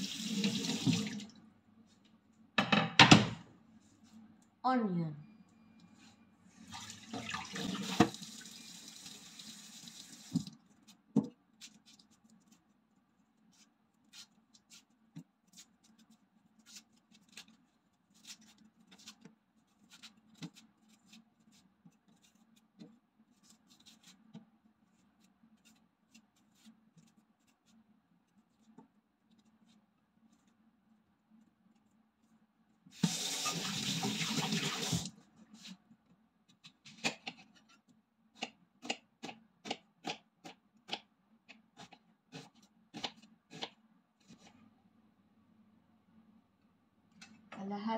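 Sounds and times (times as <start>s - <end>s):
knife clicking and scraping onion: 38.4s - 43.8s.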